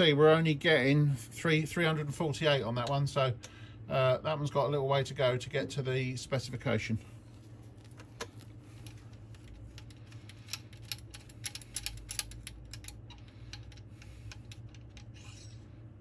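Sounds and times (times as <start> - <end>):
steady low hum: 0.0 - 16.0
small steel parts clicking: 8.7 - 15.6.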